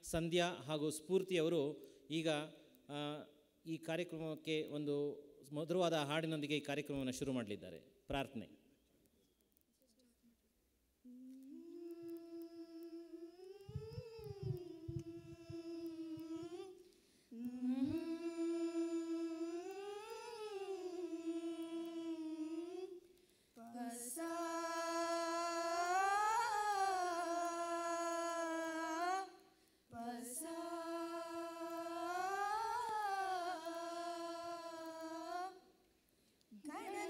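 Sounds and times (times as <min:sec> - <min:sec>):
young women singing unaccompanied: 0:11.1 - 0:35.8, 0:36.6 - 0:37.0.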